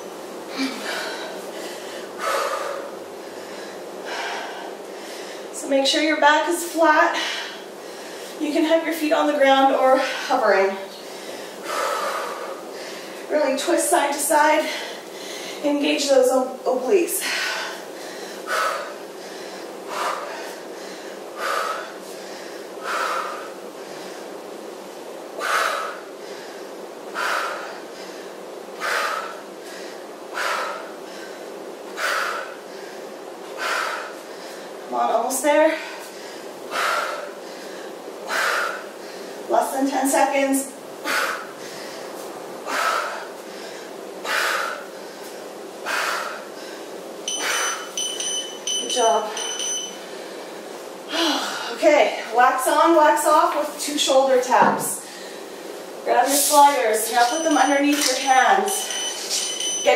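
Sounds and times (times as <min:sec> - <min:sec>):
woman exhaling forcefully: 0:51.1 - 0:51.8.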